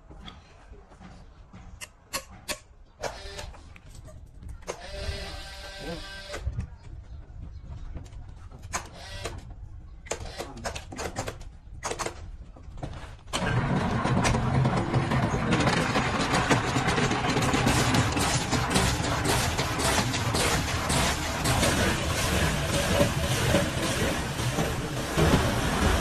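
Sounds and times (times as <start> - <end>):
cutter grinding log: 13.4 - 26.0
low motor hum: 13.4 - 26.0.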